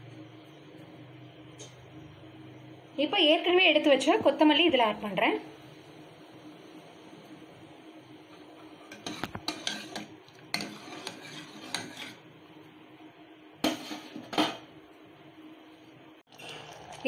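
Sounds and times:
ladle scraping and clinking in pot: 0:08.3 - 0:12.3, 0:13.6 - 0:14.6.

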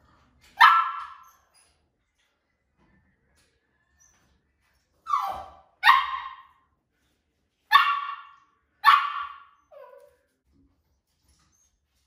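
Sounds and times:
puppy barking: 0:00.6 - 0:01.4, 0:05.1 - 0:06.6, 0:07.7 - 0:10.1
puppy whining: 0:05.0 - 0:05.7, 0:09.6 - 0:10.3.

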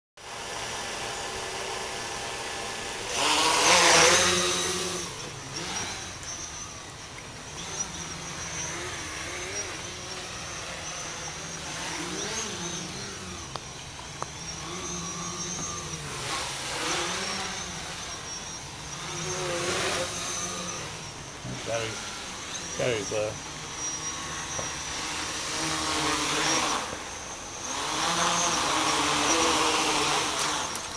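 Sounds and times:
quadcopter motors buzzing: 0:00.2 - 0:30.9.

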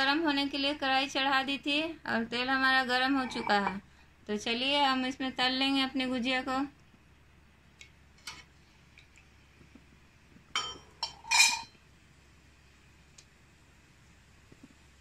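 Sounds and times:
metal spoon clinking on pan: 0:10.6 - 0:11.8.

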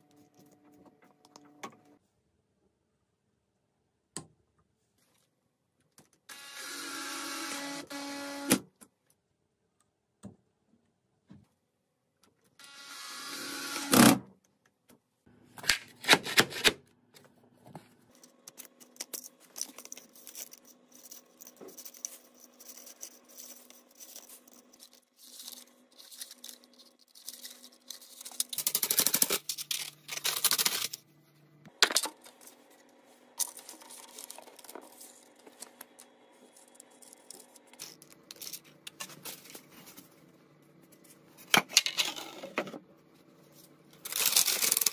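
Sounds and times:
tools scraping and rustling: 0:17.6 - 0:31.0, 0:31.8 - 0:40.2.

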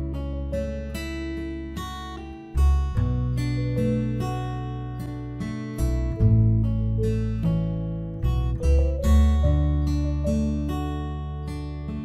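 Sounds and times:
plucked string notes: 0:00.0 - 0:12.0
steady low bass: 0:02.6 - 0:11.9.

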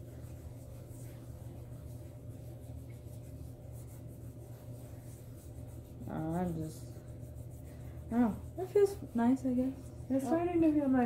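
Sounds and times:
hands rubbing: 0:00.0 - 0:10.9
steady low hum: 0:00.0 - 0:11.0.

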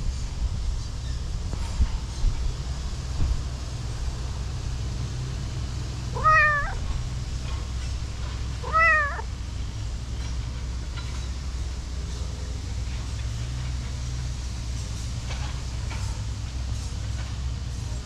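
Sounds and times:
cat meowing: 0:06.2 - 0:06.9, 0:08.6 - 0:09.3.

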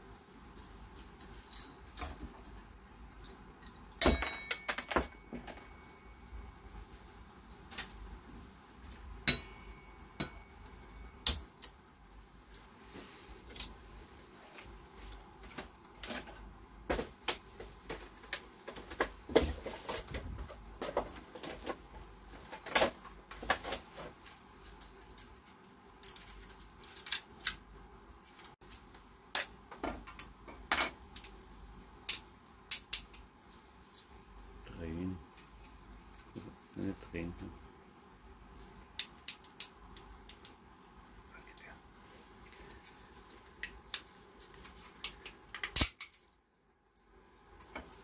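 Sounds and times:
short metallic ring: 0:04.0 - 0:06.1.

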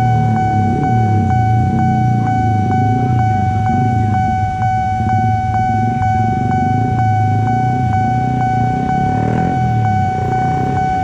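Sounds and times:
level crossing alarm ringing: 0:00.0 - 0:11.0
low rumble: 0:00.0 - 0:11.0.

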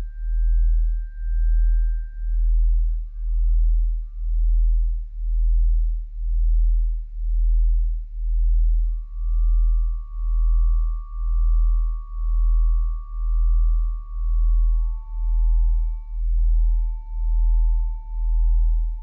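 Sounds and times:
thin steady high tone: 0:00.0 - 0:04.7, 0:08.7 - 0:19.0
deep pulsing electronic hum: 0:00.0 - 0:19.0.

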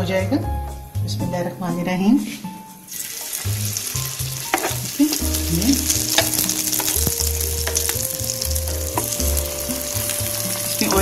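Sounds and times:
patties sizzling in oil: 0:02.9 - 0:11.0.

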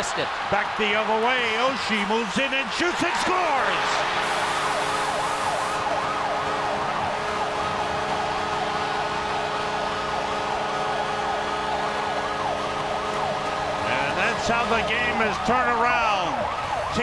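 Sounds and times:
crowd cheering: 0:00.0 - 0:17.0
siren wailing: 0:02.8 - 0:17.0
arena goal horn: 0:03.6 - 0:14.6.

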